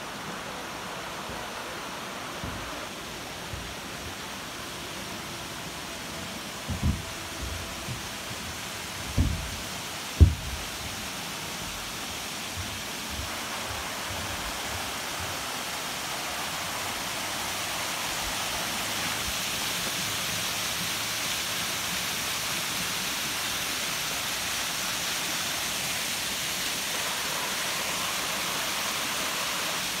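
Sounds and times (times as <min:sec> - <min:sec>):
waterfall splashing: 0:00.0 - 0:30.0
soft low thumps: 0:06.7 - 0:08.3, 0:09.1 - 0:10.8.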